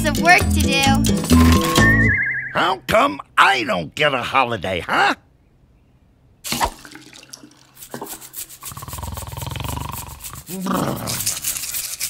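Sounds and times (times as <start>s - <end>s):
toothbrush scrubbing teeth: 7.5s - 12.0s.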